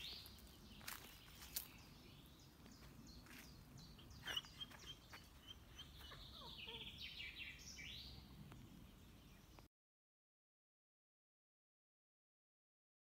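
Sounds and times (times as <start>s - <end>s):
small birds chirping: 0.0s - 9.7s
soft outdoor hiss: 0.0s - 9.7s
bird trill: 3.2s - 8.2s.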